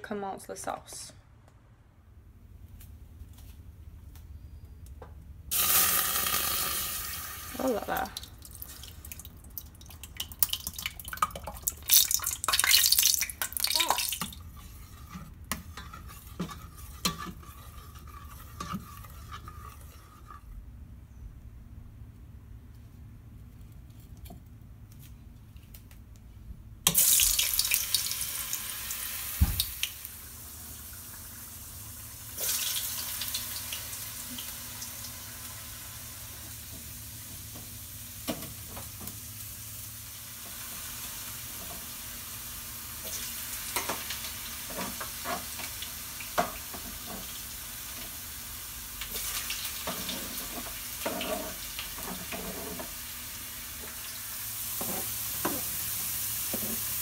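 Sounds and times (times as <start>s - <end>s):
oil sizzling in a frying pan: 5.5s - 20.3s, 26.9s - 57.0s.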